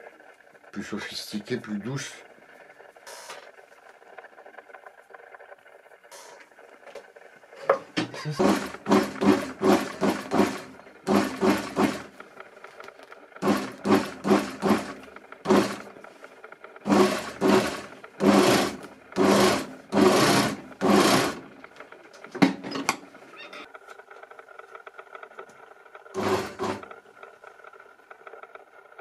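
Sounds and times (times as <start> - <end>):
industrial sewing machine stitching: 8.0 - 12.4, 13.4 - 16.1, 16.8 - 21.8, 26.2 - 26.9.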